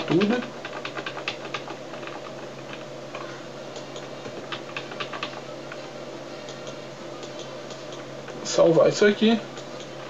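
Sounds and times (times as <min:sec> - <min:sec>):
keyboard keys clicking: 0:00.0 - 0:05.8, 0:06.4 - 0:08.4
faint electrical hum: 0:00.0 - 0:10.0.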